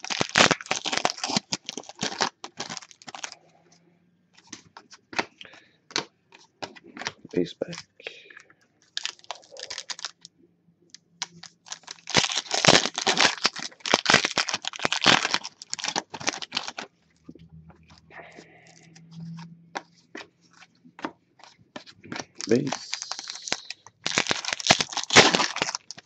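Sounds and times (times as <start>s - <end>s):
foil pack crinkling: 0.0s - 3.4s, 8.9s - 10.3s, 11.2s - 16.9s, 21.4s - 26.0s.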